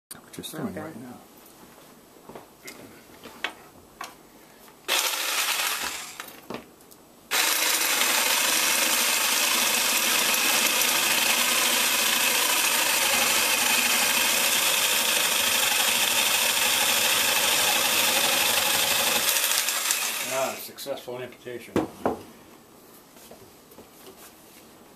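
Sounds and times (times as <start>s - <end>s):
electric saw cutting squash: 4.9s - 6.4s, 7.3s - 20.7s.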